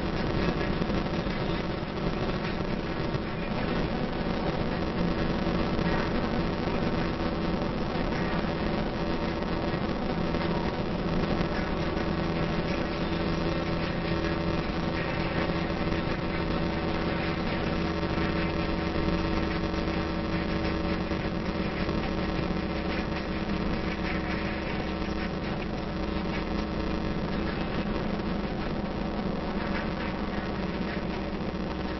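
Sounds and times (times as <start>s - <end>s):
road noise inside cabin: 0.0s - 31.9s
vehicle engine drone: 0.0s - 31.9s.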